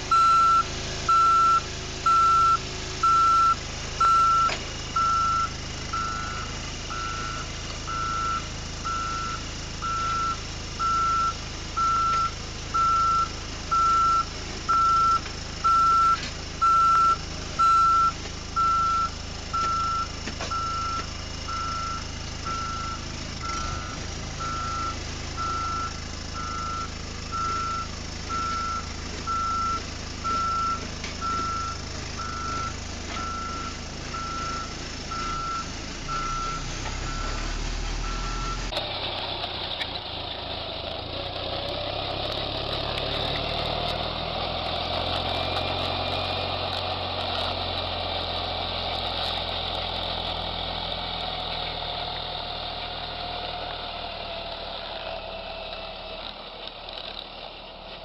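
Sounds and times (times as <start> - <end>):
snowcat engine drone: 0.0 - 58.0
reversing alarm beeping: 0.1 - 38.8.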